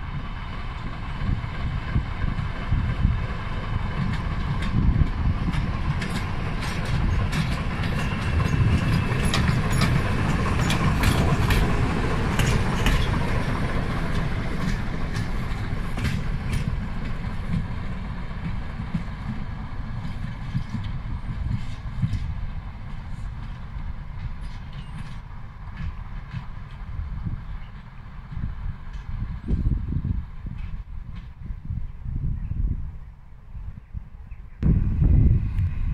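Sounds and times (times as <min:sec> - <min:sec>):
diesel locomotive engine rumbling: 0:00.0 - 0:35.9
wheels clicking over rail joints: 0:00.1 - 0:31.5.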